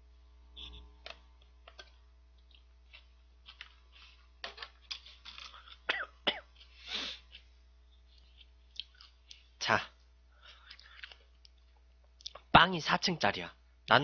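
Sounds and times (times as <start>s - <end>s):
plastic wrapper crinkling: 1.6s - 5.9s.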